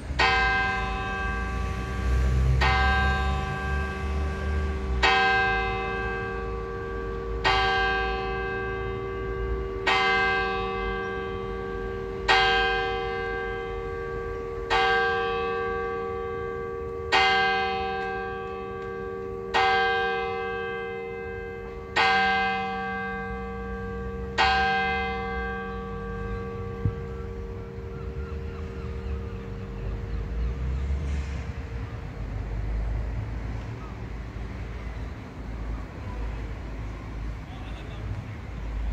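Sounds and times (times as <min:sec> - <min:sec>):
clock bell striking: 0:00.2 - 0:27.6.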